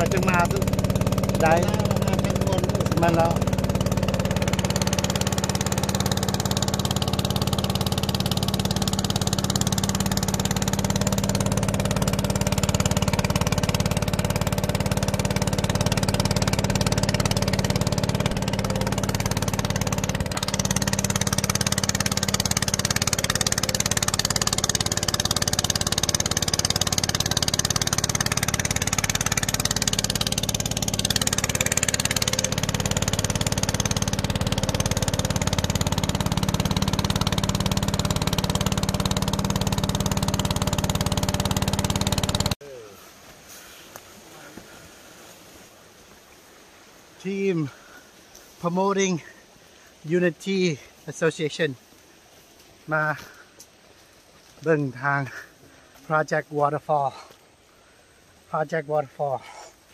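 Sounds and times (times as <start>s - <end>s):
boat engine droning: 0.0s - 59.9s
wind and water rushing: 43.1s - 53.2s.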